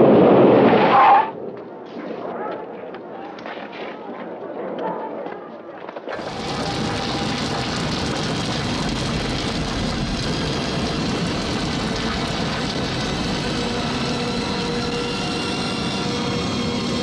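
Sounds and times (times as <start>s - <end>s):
vehicle engines running: 6.2s - 17.0s.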